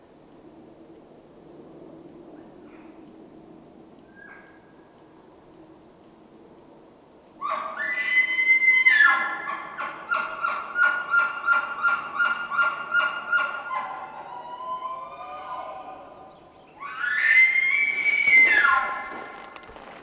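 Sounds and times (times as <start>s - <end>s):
elk bugling: 7.4s - 19.6s.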